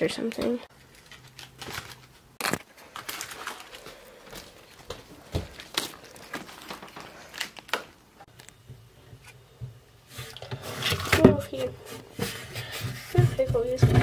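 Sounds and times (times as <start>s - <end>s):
lettuce leaves rustling: 0.7s - 7.8s.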